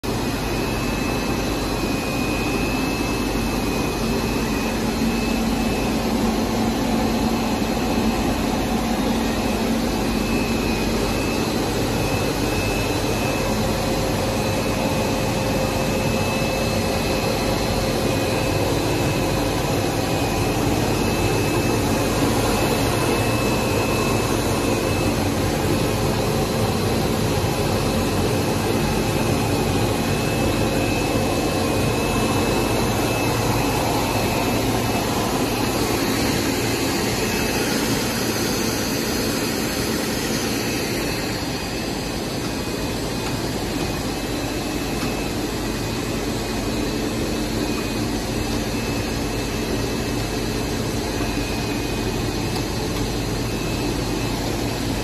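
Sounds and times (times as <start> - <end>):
machine hum and rush: 0.0 - 55.0
faint high whine: 0.1 - 55.0.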